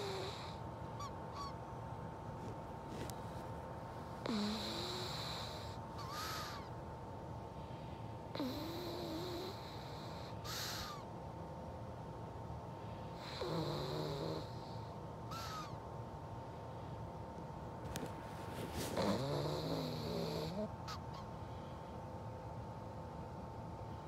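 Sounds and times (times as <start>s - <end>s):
dog snoring: 0.0s - 0.6s, 4.2s - 6.5s, 8.3s - 10.9s, 13.2s - 14.9s, 18.7s - 20.7s.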